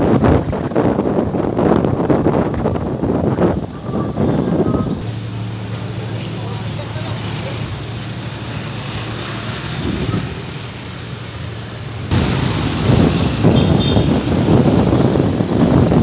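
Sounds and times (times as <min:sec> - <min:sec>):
wind buffeting microphone: 0:00.0 - 0:05.1, 0:09.5 - 0:11.0, 0:12.1 - 0:16.0
road noise: 0:00.0 - 0:16.0
vehicle engine idling: 0:03.4 - 0:09.2.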